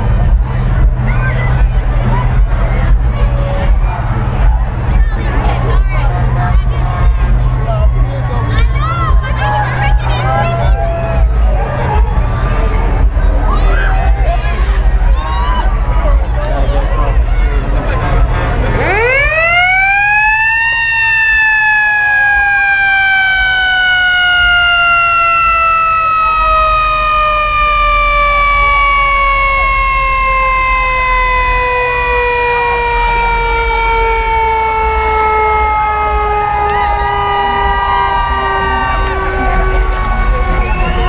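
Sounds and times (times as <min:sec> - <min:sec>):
mechanical siren wailing: 0:18.8 - 0:41.0.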